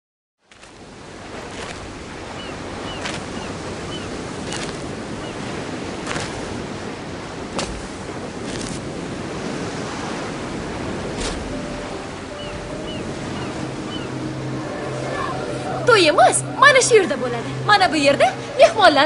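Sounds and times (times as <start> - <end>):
wind: 0.4 - 19.0
waves on pebble shore: 0.5 - 19.0.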